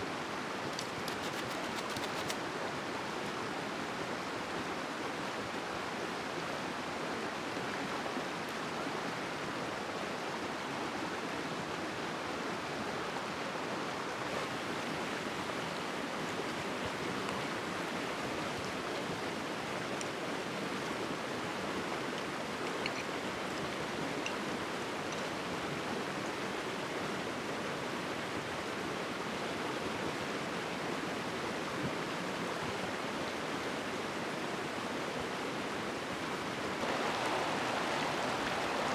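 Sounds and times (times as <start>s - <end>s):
water rushing over rocks: 34.8s - 38.9s.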